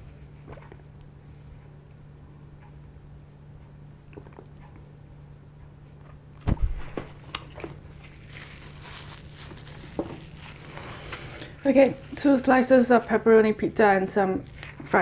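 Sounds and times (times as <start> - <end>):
steady low hum: 0.0 - 15.0
paper tissue rustling: 7.9 - 15.0.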